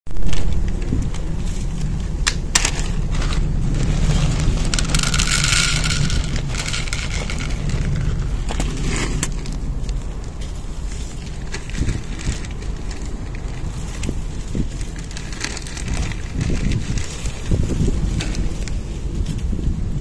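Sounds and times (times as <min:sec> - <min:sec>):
plastic bag rustling: 0:00.2 - 0:19.4
wind buffeting microphone: 0:00.2 - 0:20.0
kibble pouring into plastic dish: 0:03.8 - 0:08.3.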